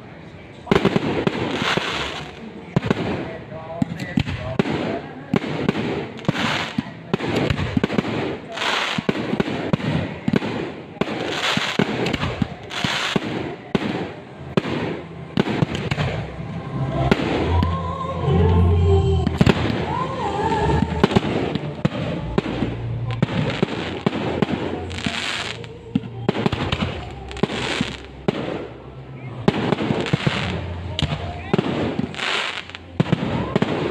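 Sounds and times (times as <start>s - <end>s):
fireworks bangs and crackling: 0.5s - 17.8s, 19.2s - 33.9s
low rumble: 13.6s - 32.1s
wavering pitched sound: 15.0s - 24.0s.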